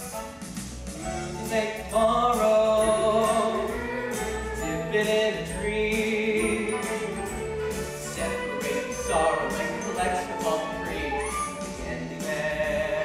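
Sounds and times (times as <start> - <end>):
instrumental accompaniment: 0.0 - 13.0
chorus singing: 8.0 - 13.0.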